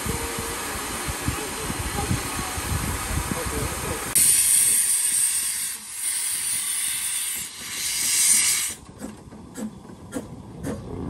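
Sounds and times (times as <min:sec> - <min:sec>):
steam locomotive hissing steam: 0:00.0 - 0:08.8.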